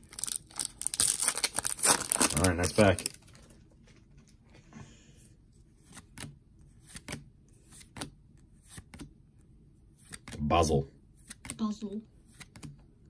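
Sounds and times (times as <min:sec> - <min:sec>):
cards flipped by hand: 0:05.8 - 0:09.2, 0:10.0 - 0:10.4, 0:11.2 - 0:11.6, 0:12.2 - 0:12.8.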